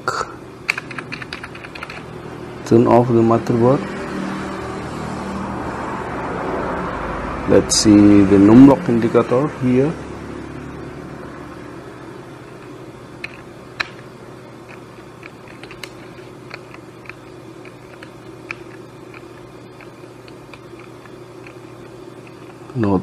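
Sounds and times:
steady low hum: 0:00.0 - 0:23.0
keyboard key clicks: 0:00.7 - 0:02.0.

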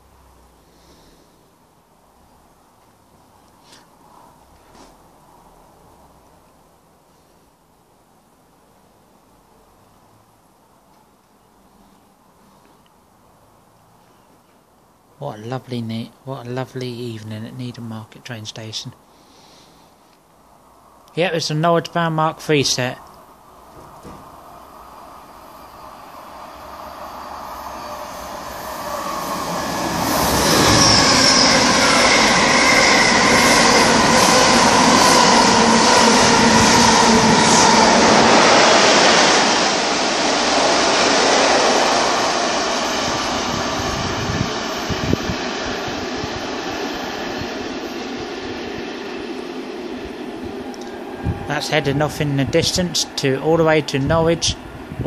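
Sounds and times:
passenger train passing at speed: 0:14.9 - 0:55.0.

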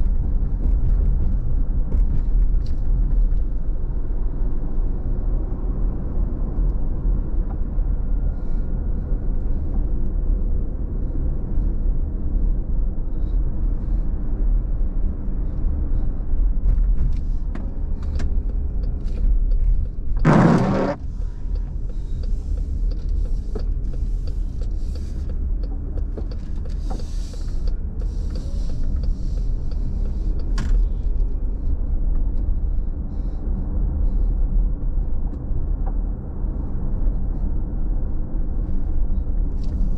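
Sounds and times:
car road and engine rumble: 0:00.0 - 0:39.9
loud burst of noise: 0:20.2 - 0:21.0.

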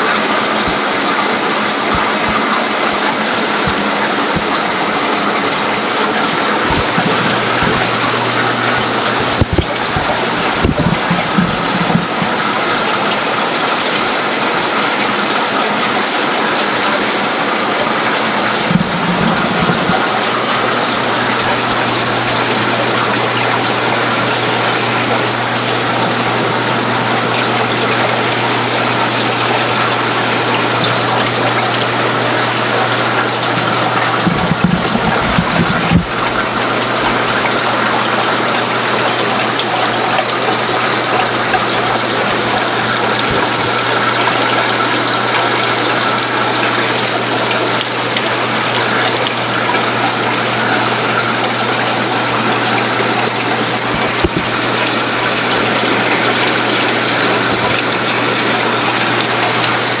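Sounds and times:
circulating water rushing: 0:00.0 - 1:00.0
low pump hum: 0:00.0 - 1:00.0
low bumps: 0:06.6 - 0:12.5.

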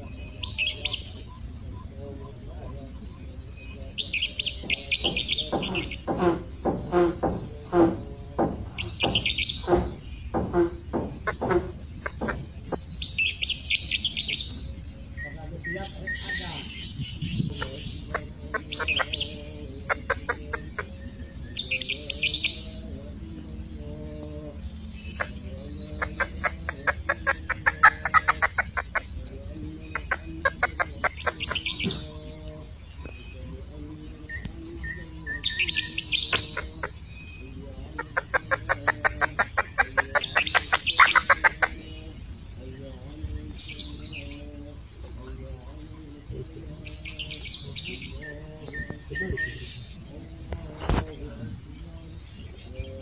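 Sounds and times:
birds chirping: 0:00.0 - 0:53.0
fast rattling bird trill: 0:03.5 - 0:22.9, 0:24.4 - 0:42.2.

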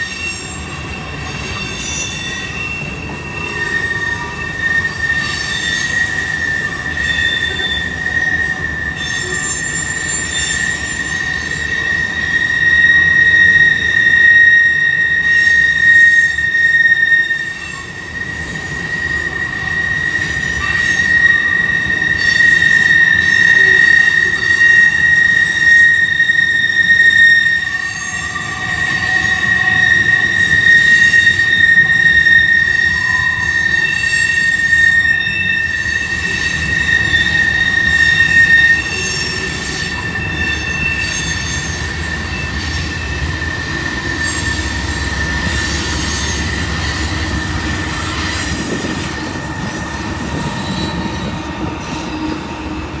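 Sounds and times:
train wheel squeal: 0:00.0 - 0:53.0
diesel locomotive rumble: 0:27.7 - 0:53.0.

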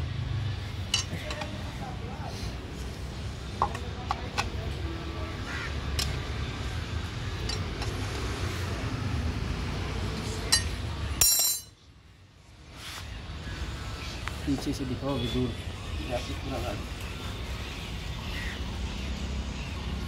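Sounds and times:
steel tool clinking on metal: 0:00.9 - 0:01.5, 0:07.4 - 0:08.0, 0:10.5 - 0:11.8.

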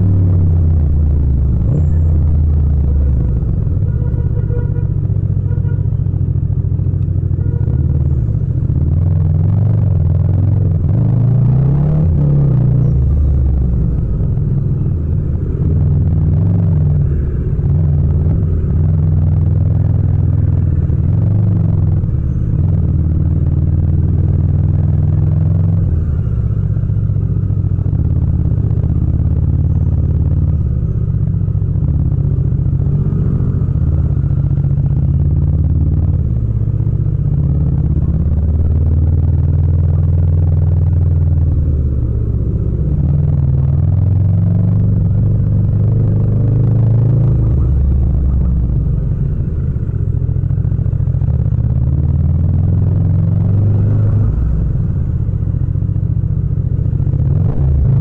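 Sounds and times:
motorcycle engine at low revs: 0:00.0 - 0:58.0.

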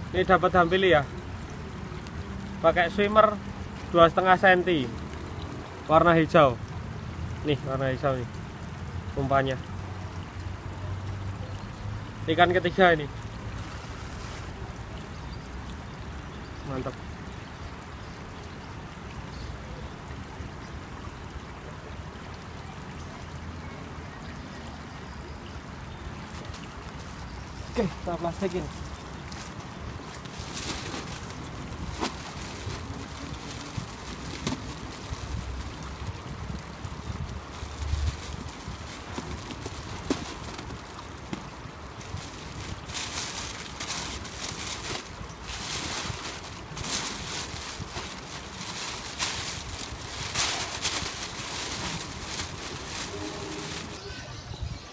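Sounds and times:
flowing river water: 0:00.0 - 0:54.9
plastic bag crinkling: 0:28.4 - 0:36.0, 0:37.5 - 0:41.1, 0:42.0 - 0:54.0.

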